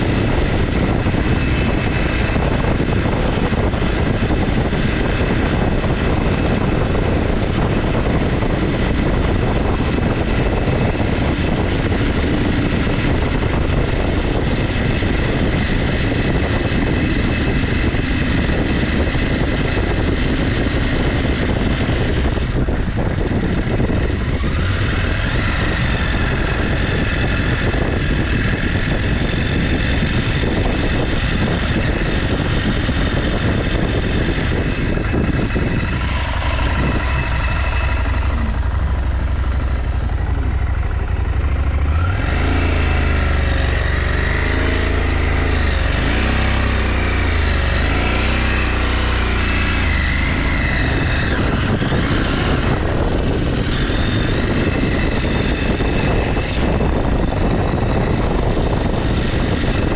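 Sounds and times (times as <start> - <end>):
motorcycle engine running: 0.0 - 59.9
wind rumbling on microphone: 0.0 - 59.9.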